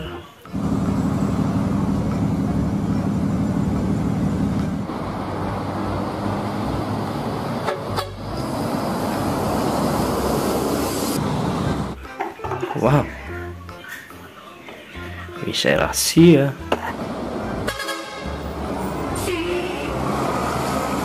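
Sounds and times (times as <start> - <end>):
bus engine running: 0.0 - 12.0, 16.8 - 21.0
bus horn sounding: 7.6 - 8.4, 17.6 - 18.6, 19.2 - 20.2.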